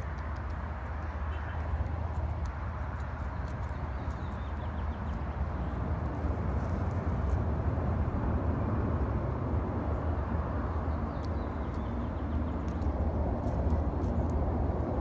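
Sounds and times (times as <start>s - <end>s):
faint small clicks: 0.0s - 5.2s, 11.1s - 11.9s, 12.5s - 14.4s
outdoor background rumble and hiss: 0.0s - 15.0s.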